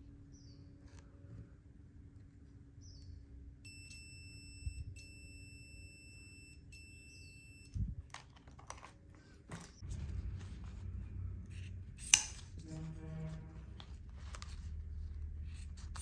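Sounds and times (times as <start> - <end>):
multimeter continuity beep: 3.6 - 7.8.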